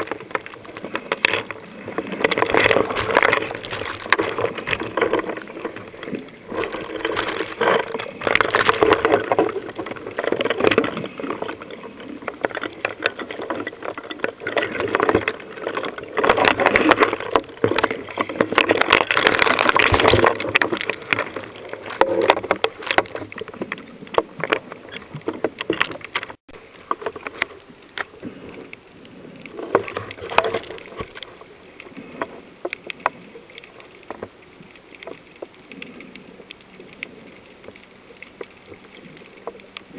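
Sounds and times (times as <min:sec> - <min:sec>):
water rushing and bubbling underwater: 0:00.0 - 0:39.9.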